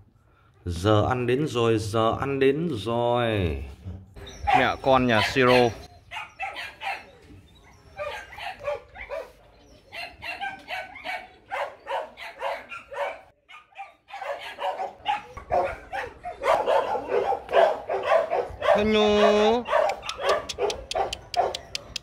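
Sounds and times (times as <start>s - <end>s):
puppies yipping and whining: 4.2s - 21.7s.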